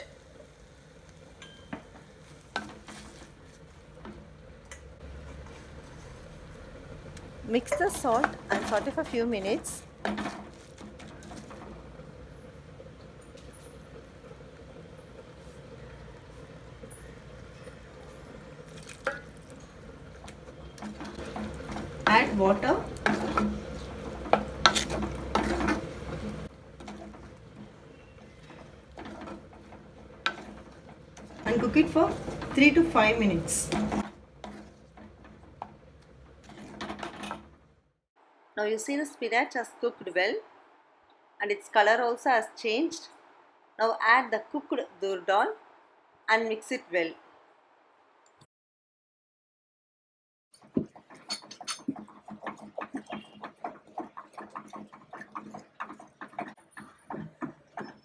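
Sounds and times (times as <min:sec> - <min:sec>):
spinach sizzling in pot: 0:00.0 - 0:37.2, 0:50.6 - 0:58.0.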